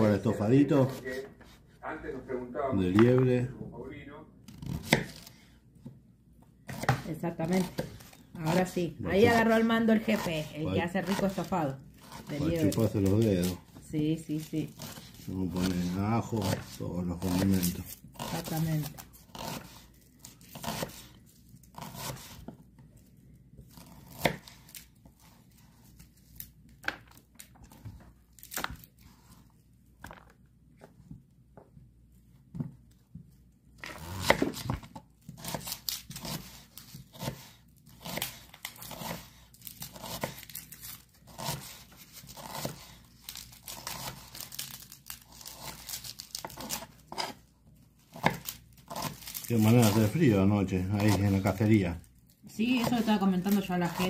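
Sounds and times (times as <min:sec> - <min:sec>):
knife slicing onions on board: 0:04.5 - 0:05.9, 0:06.6 - 0:21.1, 0:21.7 - 0:22.6, 0:23.6 - 0:25.4, 0:33.8 - 0:44.8, 0:45.4 - 0:47.4, 0:48.1 - 0:51.7.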